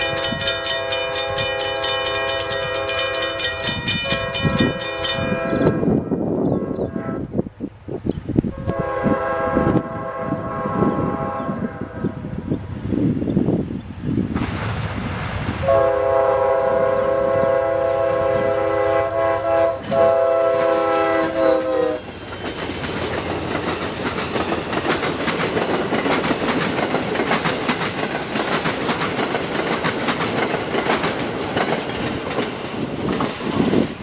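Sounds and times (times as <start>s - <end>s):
train wheels clattering on rails: 0.0s - 6.0s, 14.3s - 15.8s, 19.6s - 34.0s
train air horn chord: 0.0s - 7.4s, 8.5s - 12.3s, 15.6s - 22.0s.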